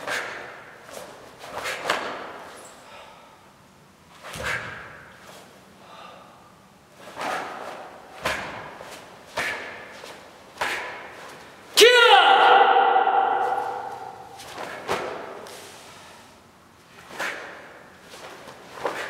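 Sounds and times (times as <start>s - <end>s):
uniform snapping and swishing: 0.0s - 2.7s, 4.1s - 5.6s, 7.0s - 11.6s, 13.4s - 15.8s, 16.9s - 19.0s.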